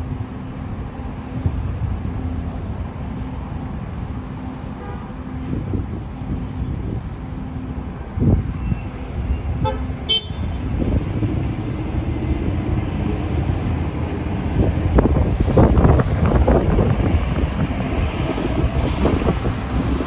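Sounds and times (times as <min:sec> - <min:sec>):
trolley running rumble: 0:00.0 - 0:20.0
trolley horn toot: 0:08.6 - 0:10.7.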